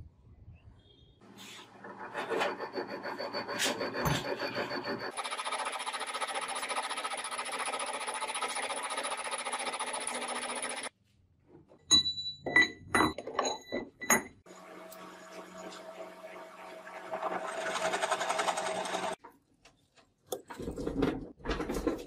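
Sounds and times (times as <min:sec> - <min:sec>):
metal lathe cutting: 0:14.8 - 0:19.2.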